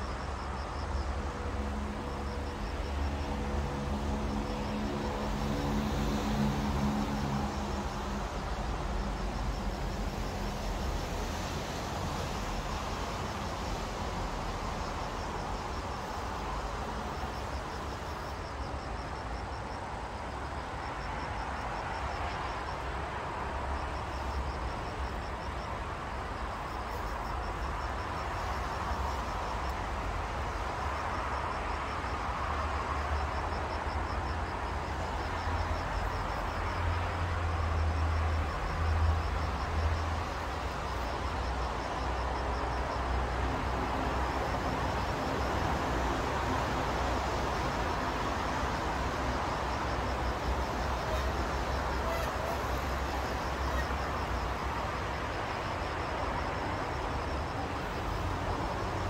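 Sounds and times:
distant road traffic hum: 0.0s - 59.0s
insect pulsed trills: 26.4s - 59.0s.

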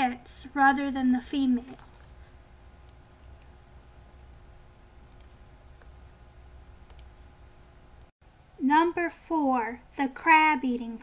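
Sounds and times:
steady low hum: 0.0s - 11.0s
small sharp clicks: 5.1s - 6.0s, 6.8s - 7.1s.

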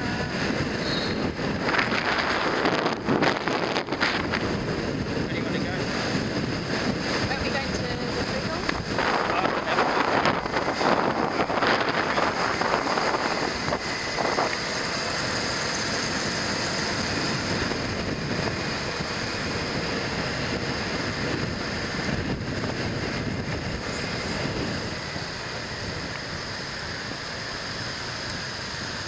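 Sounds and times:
wind rushing over microphone: 0.0s - 27.2s
scooter engine and tyre noise: 0.0s - 29.0s.

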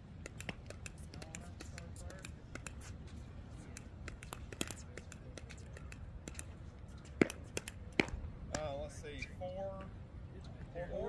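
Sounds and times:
paddle striking plastic ball: 7.1s - 8.7s.

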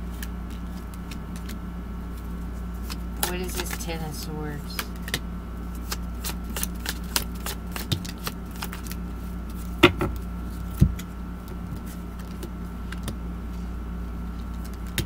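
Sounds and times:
cards snapping while shuffled: 0.1s - 1.6s, 2.8s - 3.8s, 4.7s - 13.2s, 14.4s - 15.0s
knocks: 9.8s - 10.2s.

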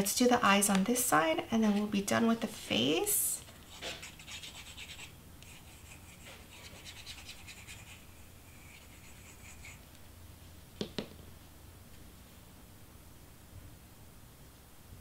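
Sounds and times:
glue nozzle scratching on cardstock: 3.7s - 8.0s.

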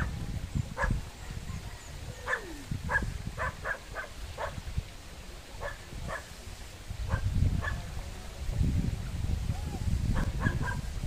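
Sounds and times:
low rumble of water: 0.0s - 11.0s
dog barking: 0.8s - 1.0s, 2.2s - 4.6s, 5.6s - 6.3s, 7.1s - 7.9s, 10.2s - 10.9s.

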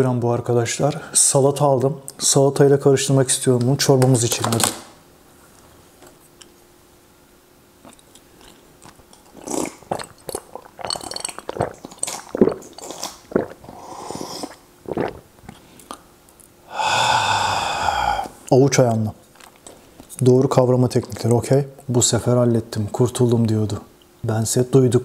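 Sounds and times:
slurping and gulping soup: 7.8s - 16.0s.

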